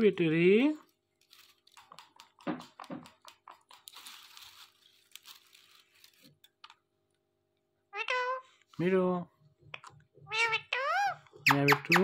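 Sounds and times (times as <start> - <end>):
parakeet clicking and crunching: 1.1 - 6.9.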